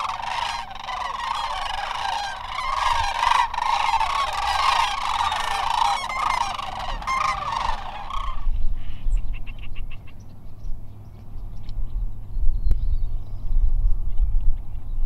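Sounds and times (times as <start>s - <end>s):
flock of birds calling: 0.0s - 10.2s.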